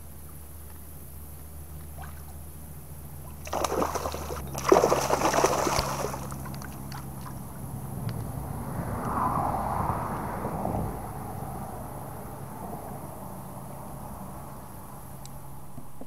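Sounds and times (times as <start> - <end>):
fish splashing at water surface: 3.3 - 7.4.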